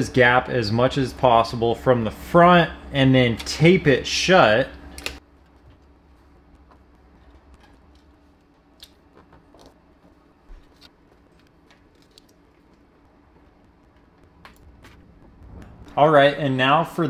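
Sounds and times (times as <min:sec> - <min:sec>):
low steady hum: 0:00.0 - 0:17.0
foil tape crinkling and tapping: 0:05.4 - 0:15.0.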